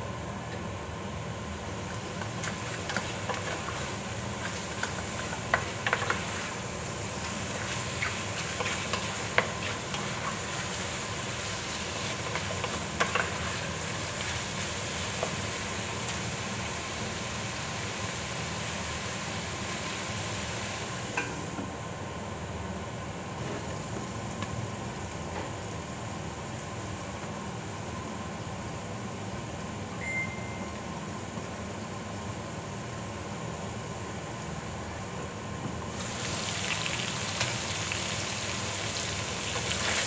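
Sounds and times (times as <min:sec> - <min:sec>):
pork frying sizzle: 0:01.8 - 0:21.2, 0:35.9 - 0:40.0.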